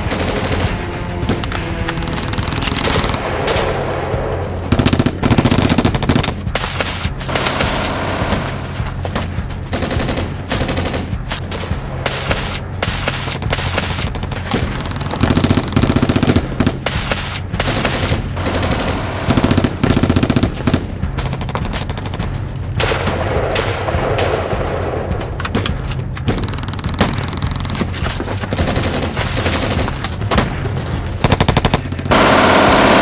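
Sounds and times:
automatic gunfire bursts: 0:04.7 - 0:08.8, 0:12.1 - 0:22.2, 0:31.2 - 0:33.0.

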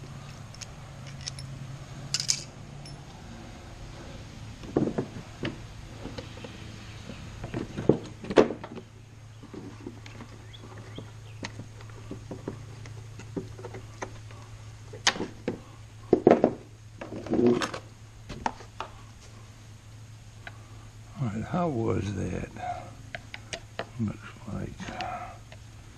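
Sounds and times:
low steady hum: 0:00.0 - 0:25.9
metal parts clinking and knocking: 0:00.3 - 0:01.5, 0:02.1 - 0:03.0.

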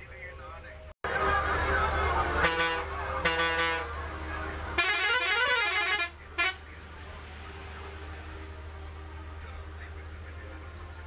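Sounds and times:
low bus engine drone: 0:00.0 - 0:11.0
multi-tone bus horn: 0:01.1 - 0:06.8.

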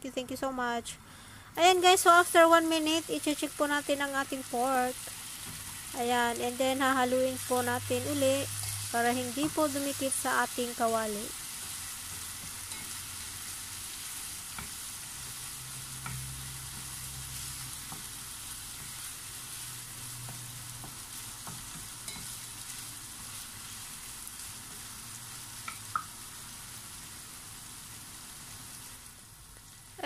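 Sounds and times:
meat sizzling in a frying pan: 0:01.8 - 0:30.0
spatula scraping and tapping pan: 0:11.6 - 0:13.3, 0:14.5 - 0:14.8, 0:16.0 - 0:19.1, 0:20.0 - 0:23.3, 0:25.6 - 0:26.1.

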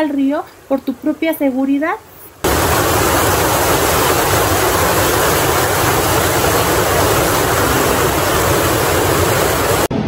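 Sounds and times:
water rushing over rocks: 0:02.4 - 0:09.9.

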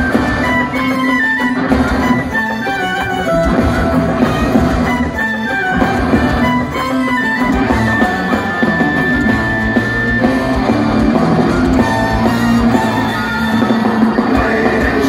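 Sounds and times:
live metal band playing: 0:00.0 - 0:15.0
violin high note: 0:11.5 - 0:14.2.

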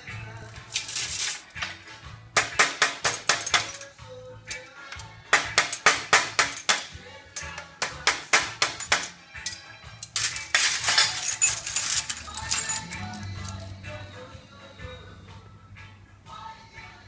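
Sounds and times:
glass pieces clinking: 0:00.7 - 0:01.8, 0:03.0 - 0:07.7, 0:08.4 - 0:13.7
glass canes snapping: 0:02.4 - 0:03.9, 0:04.5 - 0:13.6.

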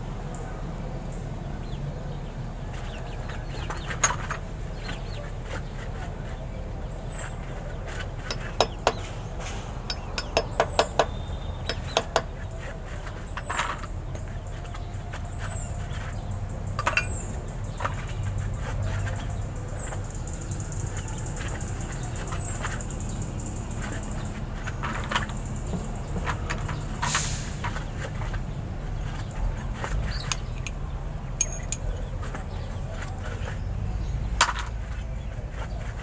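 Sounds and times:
metal clinks and taps: 0:16.8 - 0:17.3, 0:30.1 - 0:30.8, 0:31.4 - 0:32.0, 0:34.4 - 0:34.7.

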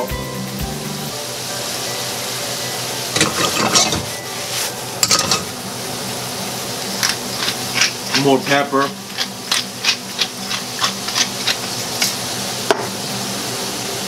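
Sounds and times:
vegetables sizzling in a skillet: 0:00.0 - 0:14.0
pan clinking and scraping on grate: 0:03.1 - 0:05.6, 0:07.0 - 0:12.2.

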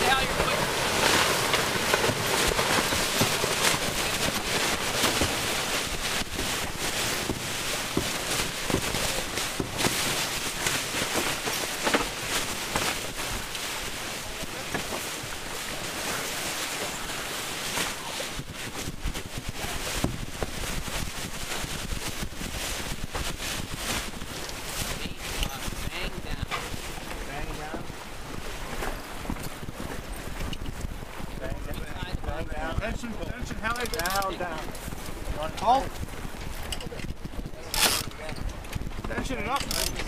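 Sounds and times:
water rushing past hull: 0:00.0 - 0:40.0
wind buffeting microphone: 0:16.8 - 0:40.0.

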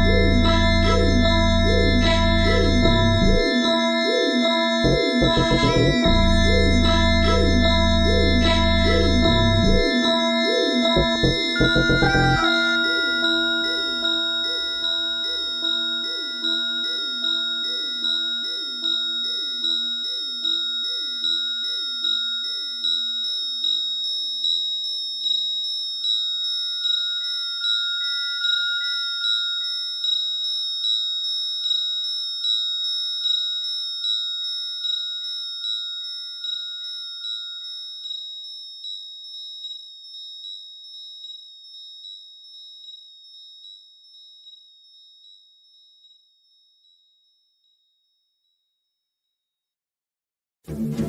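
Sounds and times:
high beeping electronic tones: 0:00.0 - 0:03.5, 0:04.8 - 0:10.0, 0:10.9 - 0:16.6
low pulsing synth figure: 0:00.0 - 0:03.5, 0:04.8 - 0:10.0, 0:11.0 - 0:12.6, 0:50.7 - 0:51.0.

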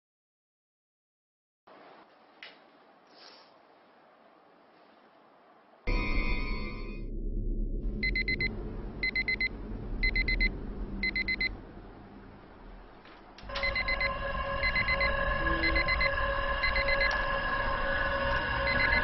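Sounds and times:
alarm clock beeping: 0:05.9 - 0:07.0, 0:08.0 - 0:11.5, 0:13.5 - 0:17.4, 0:18.6 - 0:19.0
steady tones: 0:05.9 - 0:19.0.

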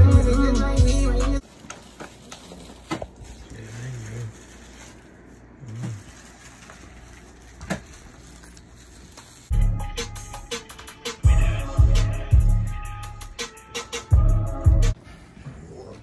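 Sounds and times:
hip-hop beat through speakers: 0:00.0 - 0:01.4, 0:09.5 - 0:15.0.

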